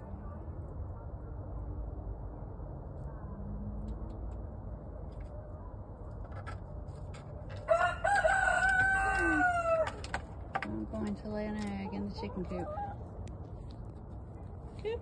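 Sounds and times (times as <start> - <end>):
low rumble: 0.0 - 7.7
rooster crowing: 7.6 - 10.1.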